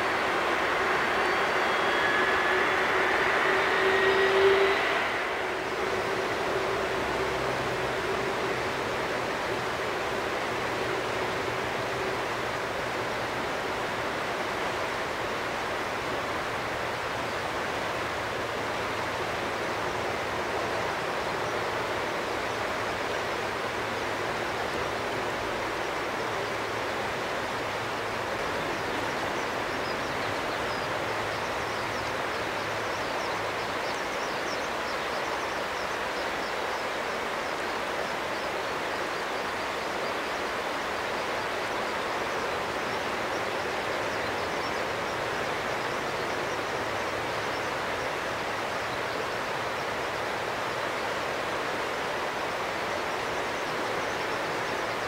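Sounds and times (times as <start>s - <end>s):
jet engines idling: 0.0s - 17.0s.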